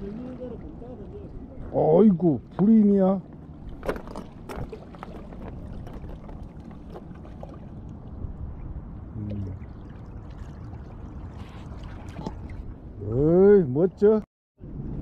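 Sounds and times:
water lapping against rocks: 2.4s - 8.4s, 9.3s - 12.9s.

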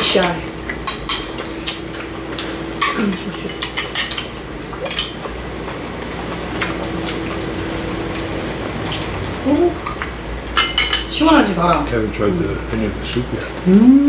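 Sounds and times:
utensils clinking on bowls: 2.8s - 5.2s, 9.8s - 11.8s.

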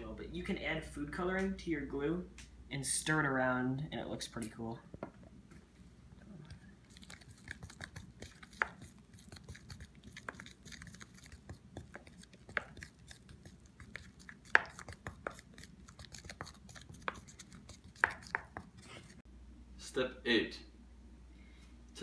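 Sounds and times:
wooden spoon stirring thick glue: 6.5s - 19.2s.

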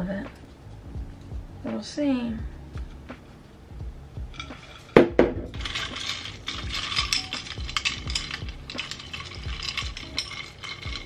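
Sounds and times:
ice cubes clinking in a glass: 4.4s - 11.0s.

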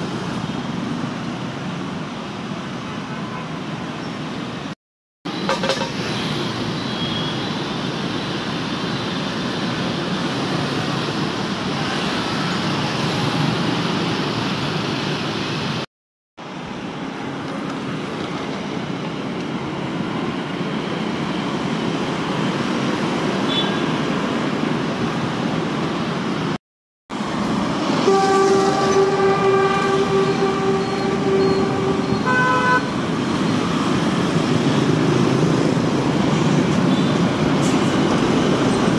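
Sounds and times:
street traffic rumble: 0.0s - 38.9s
motorbike engines: 27.2s - 38.9s
long held vehicle horn: 28.0s - 32.9s
vehicle horn beeps: 28.0s - 32.9s.

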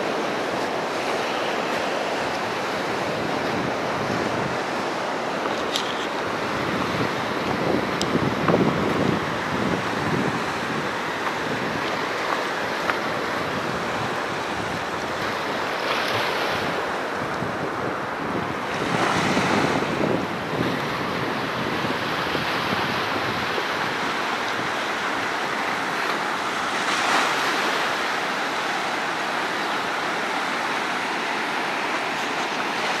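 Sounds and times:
wind rumbling on microphone: 0.0s - 29.3s
sea surf breaking: 0.0s - 33.0s.

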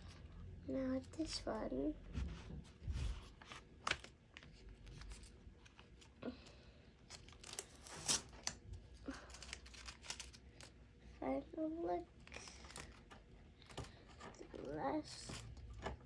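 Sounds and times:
faint crinkling: 0.0s - 16.0s
tape ripping: 7.2s - 8.6s.

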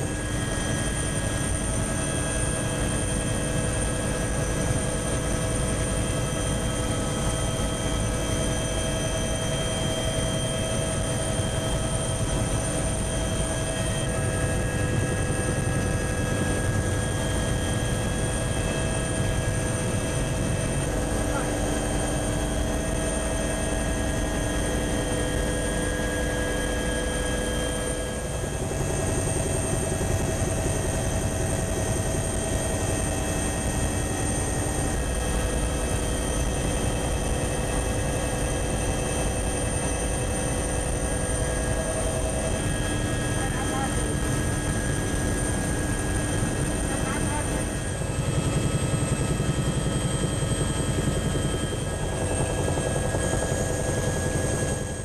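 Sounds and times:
aircraft engine rumble: 0.0s - 55.0s
helicopter rotor beating: 0.0s - 55.0s
steady whining tones: 0.0s - 55.0s.

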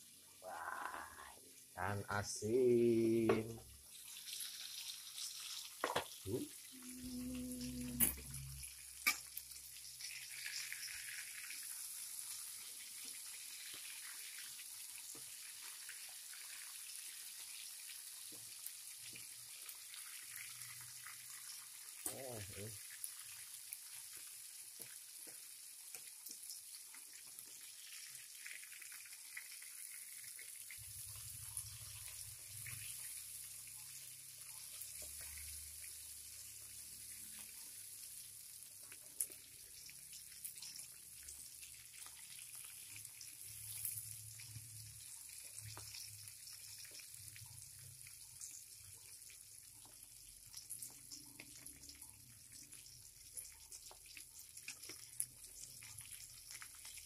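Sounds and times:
fish frying in hot oil: 0.0s - 57.0s
oil popping and crackling: 3.3s - 6.8s, 7.8s - 57.0s.

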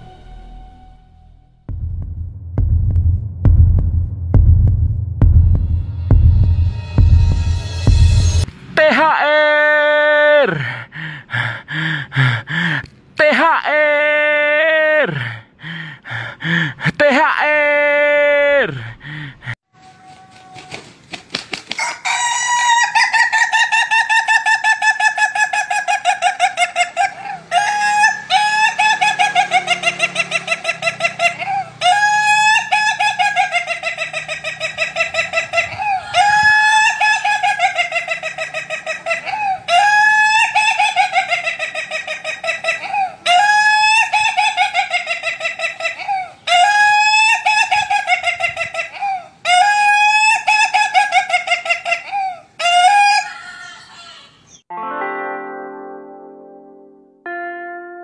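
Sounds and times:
rooster crowing: 21.8s - 23.8s, 27.0s - 30.6s, 31.4s - 33.6s, 35.0s - 37.9s, 39.1s - 41.3s, 52.1s - 54.5s.

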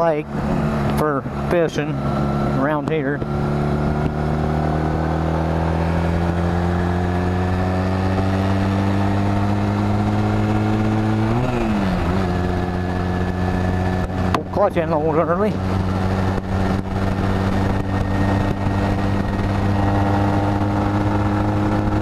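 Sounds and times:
motorcycle engine: 0.0s - 22.0s
wind rush: 15.5s - 22.0s.

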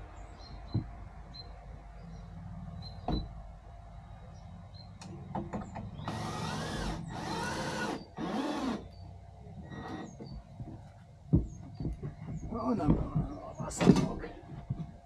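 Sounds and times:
small power tool whirring: 6.0s - 8.9s
knocks: 10.2s - 14.9s.

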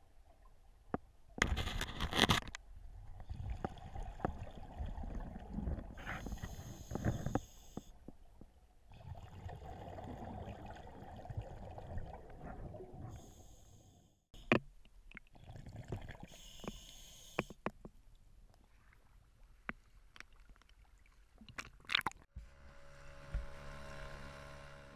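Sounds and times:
underwater clicks and knocks: 14.4s - 15.3s, 17.4s - 18.0s
steady motor hum: 22.4s - 24.9s.

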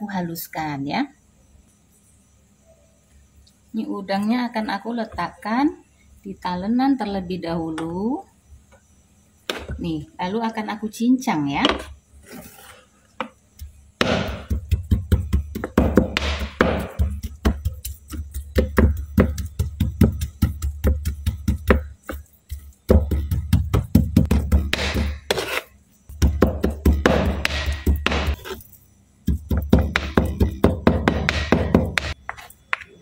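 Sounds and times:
knife chopping on plastic board: 13.2s - 28.6s, 29.3s - 32.9s.

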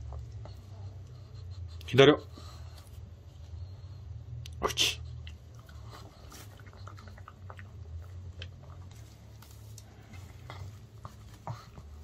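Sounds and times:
dog licking lips and chewing: 4.5s - 11.8s.

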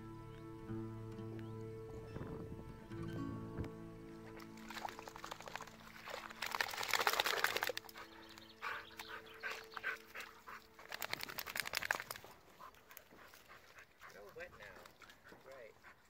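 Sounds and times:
dog digging in wet mud: 4.2s - 16.0s.

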